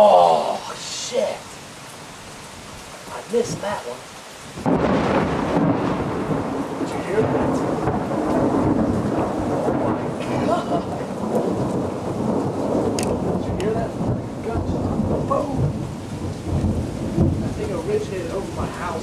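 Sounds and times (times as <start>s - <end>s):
rain falling: 0.0s - 19.0s
thunder clap and rumble: 4.6s - 19.0s.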